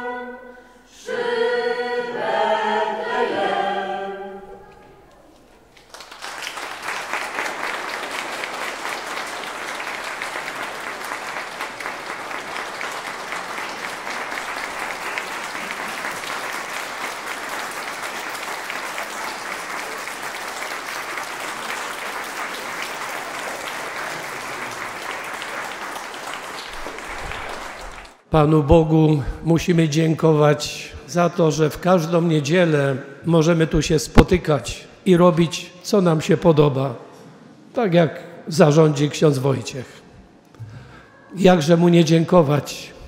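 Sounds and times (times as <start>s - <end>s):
audience applause: 5.7s - 28.3s.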